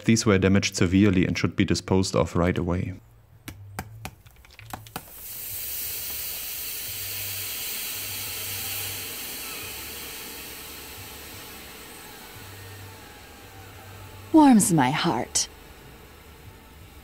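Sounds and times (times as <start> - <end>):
battery venting hiss: 4.2 - 17.0.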